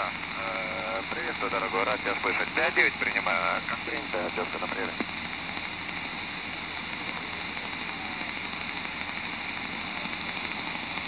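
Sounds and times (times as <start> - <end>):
radio static hiss: 0.0 - 11.0.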